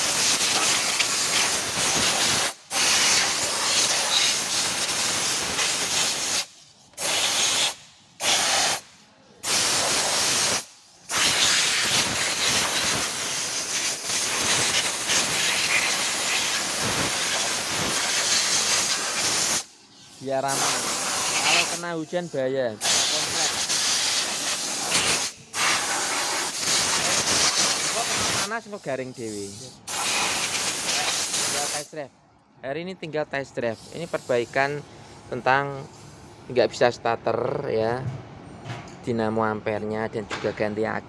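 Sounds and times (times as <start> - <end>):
compressed air spray gun hissing: 0.0 - 22.2, 22.8 - 31.9, 33.8 - 34.6.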